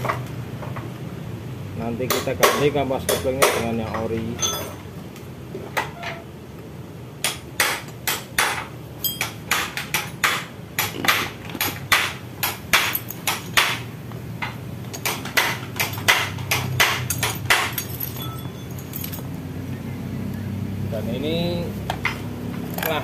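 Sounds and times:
hammer tapping on metal: 7.2s - 18.1s.

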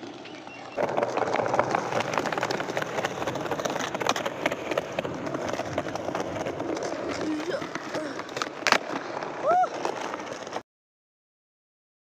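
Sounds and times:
skateboard wheels rolling on stone: 0.0s - 10.6s.

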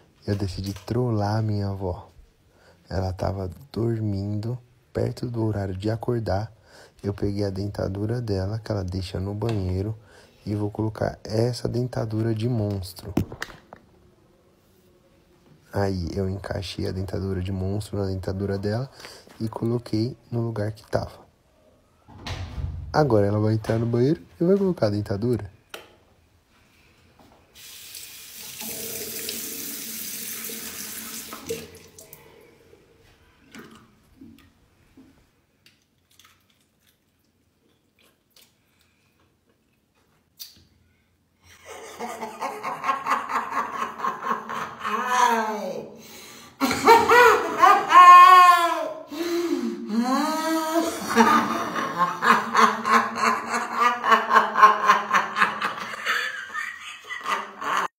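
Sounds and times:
elderly woman laughing hard: 41.5s - 45.8s, 46.6s - 57.9s.

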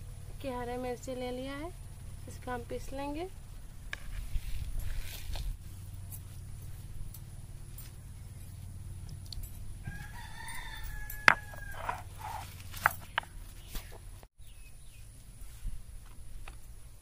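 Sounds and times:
rooster crowing: 9.8s - 12.6s
stone roller knocking on stone: 11.2s - 13.3s.

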